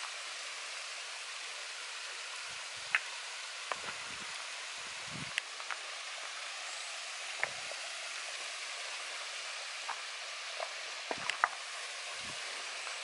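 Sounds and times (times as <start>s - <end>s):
waterfall hissing: 0.0s - 13.0s
footsteps on rocks: 9.7s - 11.7s.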